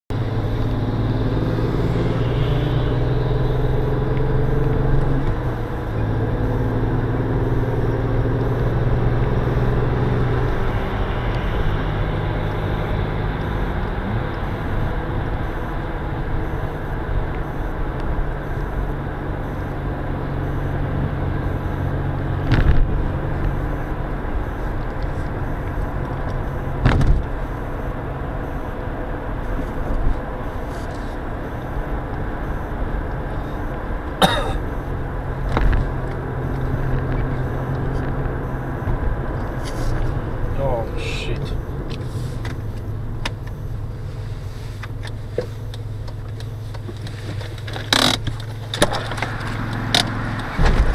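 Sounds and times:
car engine hum and road noise: 0.1s - 50.9s.

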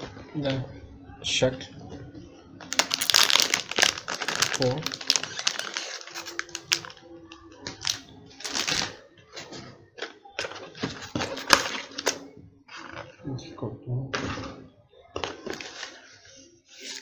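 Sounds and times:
plastic bag crinkling: 2.7s - 9.0s.

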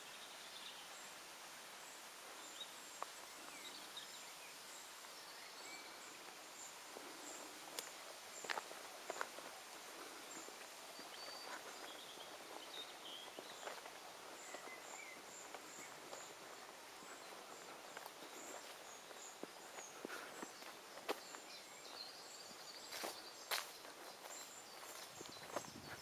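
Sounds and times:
faint birdsong: 0.0s - 26.0s
soft steady hiss: 0.0s - 26.0s
footsteps on grass and dirt: 6.1s - 26.0s.

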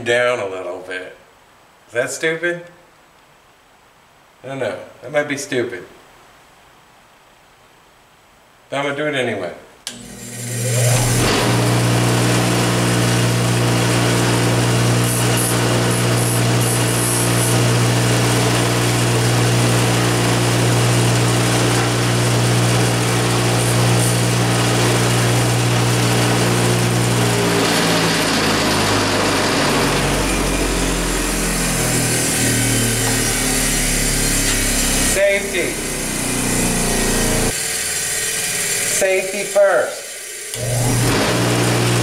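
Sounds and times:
bench grinder motor hum: 9.9s - 42.0s
metal grinding hiss: 26.2s - 41.0s.

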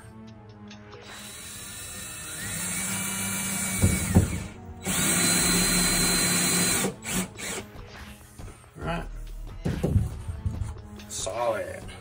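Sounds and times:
cordless drill driving screws: 1.0s - 7.7s.

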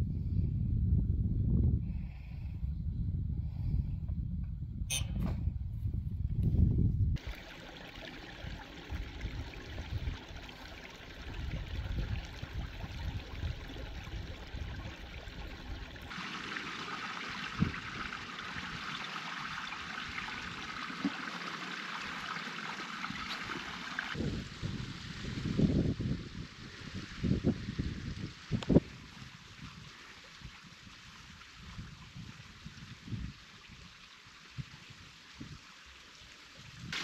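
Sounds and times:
wind buffeting microphone: 0.0s - 16.2s, 23.1s - 35.6s
stream trickling over rocks: 7.2s - 37.0s.

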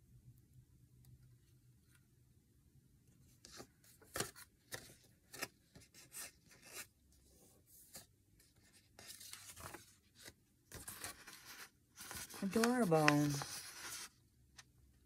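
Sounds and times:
tape tearing and paper rustling: 10.8s - 14.1s.

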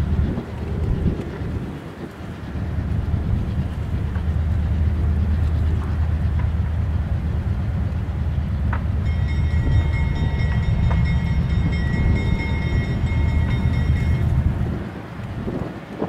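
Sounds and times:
freight train rumbling: 0.0s - 16.0s
high steady squeal: 9.0s - 14.8s.

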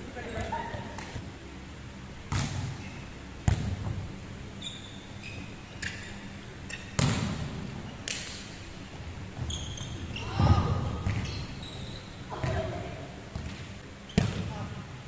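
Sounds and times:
volleyball thuds echoing: 2.3s - 2.8s, 3.4s - 4.0s, 6.9s - 8.3s
sneakers squeaking on wooden court: 4.5s - 7.5s, 8.1s - 14.6s.

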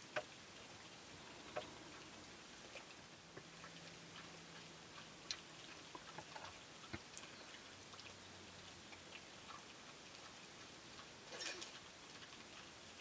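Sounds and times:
pigs feeding in mud puddle: 0.0s - 13.0s.

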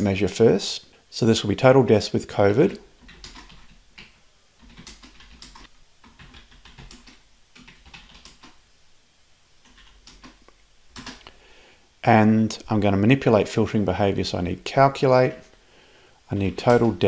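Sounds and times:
keyboard typing: 3.0s - 8.6s, 9.6s - 11.3s, 16.5s - 17.0s.

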